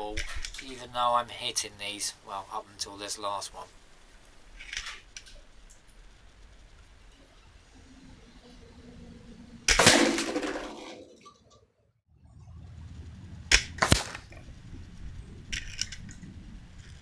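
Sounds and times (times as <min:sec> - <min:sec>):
air rifle shot: 0:09.7 - 0:10.9, 0:13.5 - 0:14.4.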